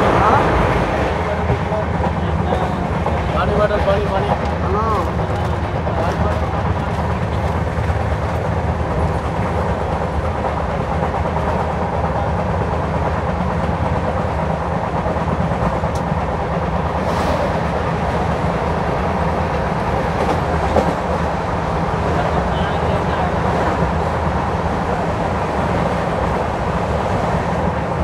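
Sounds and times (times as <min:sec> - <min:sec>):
clickety-clack over track: 0:00.0 - 0:28.0
train wheels rumbling on rail: 0:00.0 - 0:28.0.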